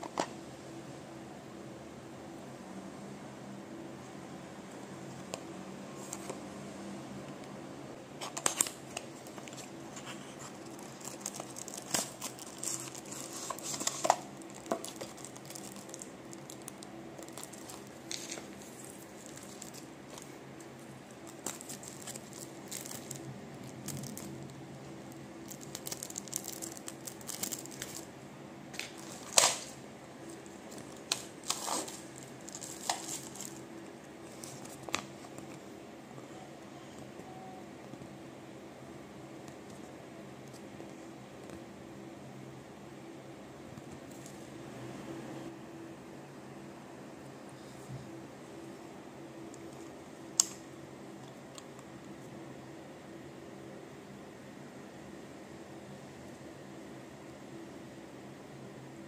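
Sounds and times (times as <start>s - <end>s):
low steady hum: 0.0s - 59.0s
plastic bag crinkling: 8.3s - 24.6s, 25.4s - 28.1s, 28.8s - 33.6s.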